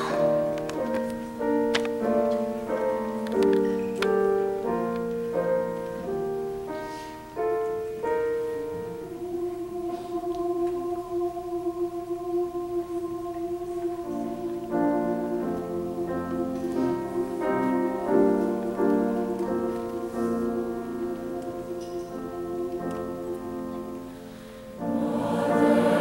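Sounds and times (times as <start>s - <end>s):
slow piano chords: 0.0s - 26.0s
choir singing in unison: 8.2s - 26.0s.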